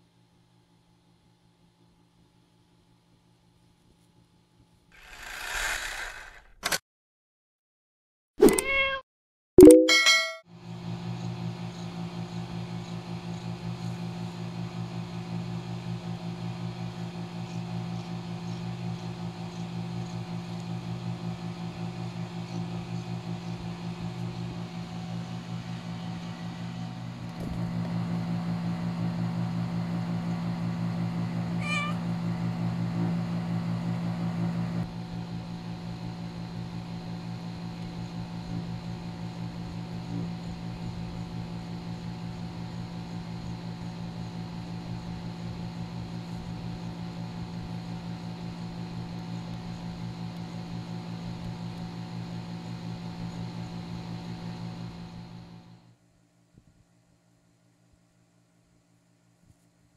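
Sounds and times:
cat meow: 0:08.5 - 0:09.0, 0:31.6 - 0:32.0.

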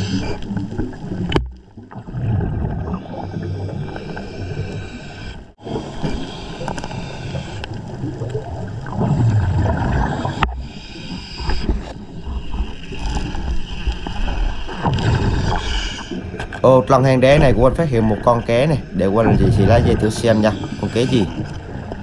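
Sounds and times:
underwater breathing bubbles: 0:02.0 - 0:16.4.

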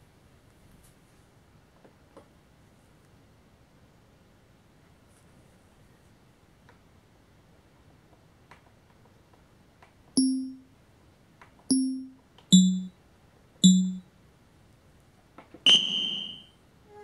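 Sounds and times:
electronic dings: 0:10.2 - 0:10.7, 0:11.7 - 0:12.9, 0:13.6 - 0:14.0.

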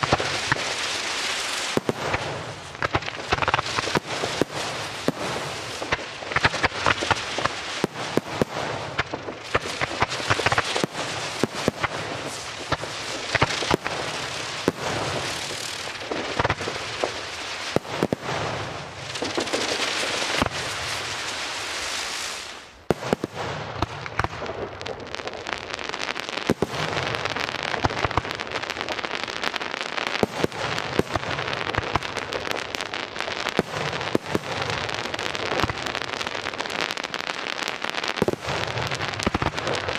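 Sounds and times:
steady firework hissing: 0:00.0 - 0:23.3
sharp firework bangs: 0:00.0 - 0:24.6
fireworks crackling: 0:00.0 - 0:39.9.

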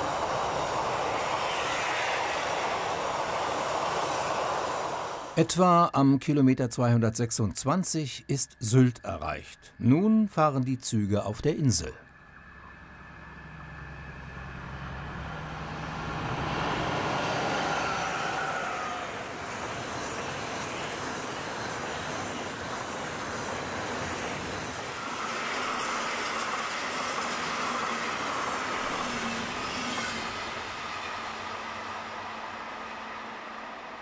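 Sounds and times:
diesel locomotive passing: 0:00.0 - 0:05.5, 0:11.6 - 0:34.0
train wheels rumbling on rail: 0:14.9 - 0:34.0
thin wheel squeal: 0:17.0 - 0:34.0.

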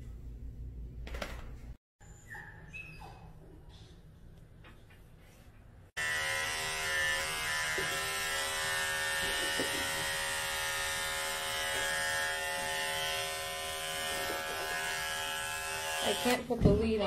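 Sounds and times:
electric clippers buzzing: 0:06.0 - 0:16.4.

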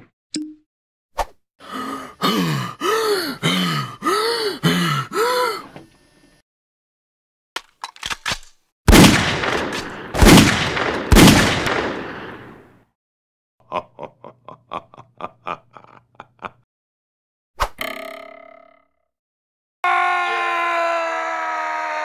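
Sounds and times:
cartoon shotgun blasts: 0:08.9 - 0:12.6.

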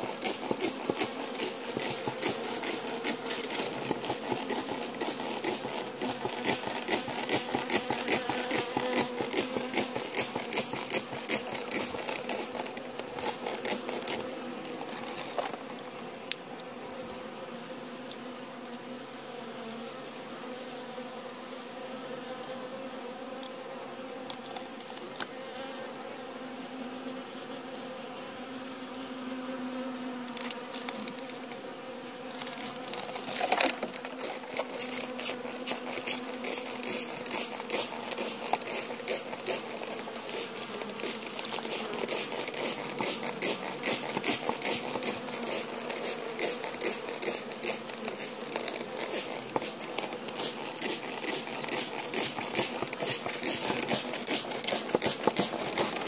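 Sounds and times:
bees buzzing in a hive: 0:00.0 - 0:56.0
rapid crackle of clicks: 0:32.4 - 0:56.0.

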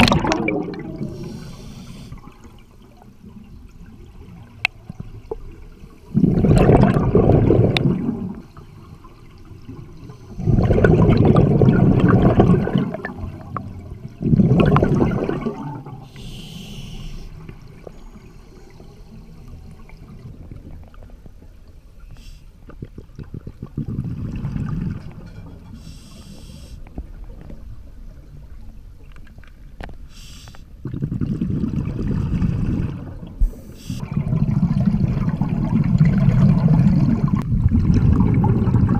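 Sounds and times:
exhaled bubbles gushing: 0:00.0 - 0:18.4, 0:22.6 - 0:26.0, 0:30.8 - 0:38.9
regulator inhale hiss: 0:01.1 - 0:02.3, 0:16.0 - 0:17.4, 0:22.1 - 0:22.6, 0:25.8 - 0:26.9, 0:30.1 - 0:30.7, 0:33.4 - 0:34.0.

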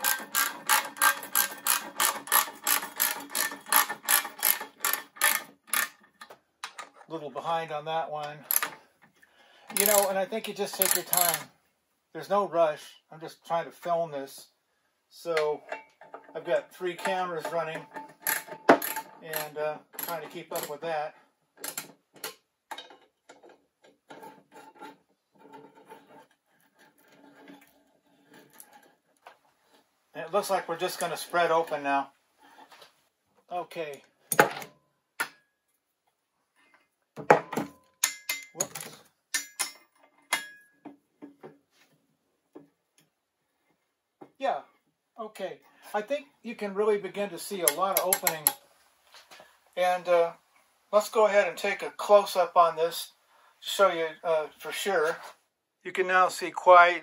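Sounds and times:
ratchet wrench clicking: 0:00.0 - 0:06.0, 0:09.8 - 0:10.1, 0:10.8 - 0:11.4
wrench scraping on steel nuts: 0:00.0 - 0:06.1, 0:09.7 - 0:11.5, 0:15.3 - 0:20.9, 0:47.6 - 0:48.6.

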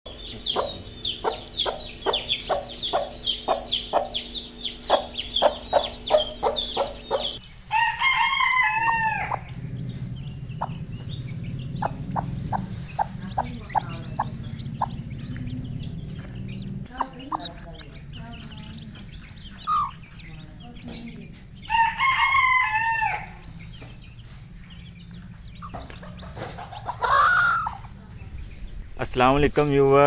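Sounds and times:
chicks peeping: 0:00.1 - 0:30.0
low steady hum: 0:00.1 - 0:30.0
rooster crowing: 0:05.0 - 0:15.0, 0:21.6 - 0:23.8, 0:26.8 - 0:27.8.

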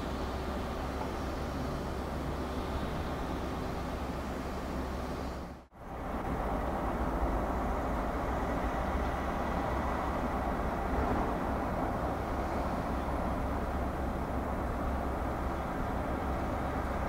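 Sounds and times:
distant diesel locomotives rumbling: 0:00.0 - 0:17.0.

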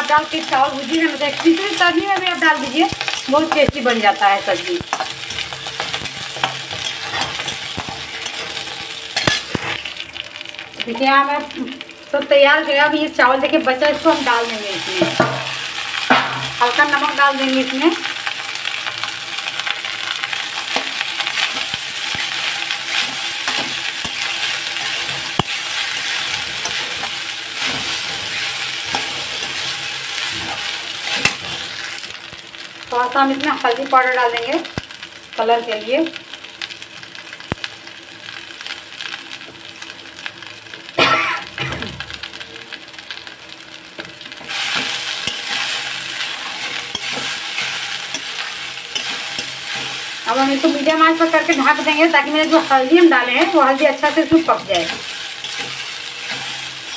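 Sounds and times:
rice sizzling in a pan: 0:00.0 - 0:56.9
spatula scraping a metal pan: 0:04.9 - 0:09.8, 0:44.5 - 0:50.1, 0:54.7 - 0:56.9.

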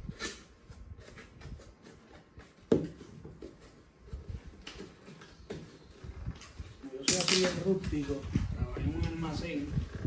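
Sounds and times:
cardboard scraping and rustling: 0:00.0 - 0:06.8.

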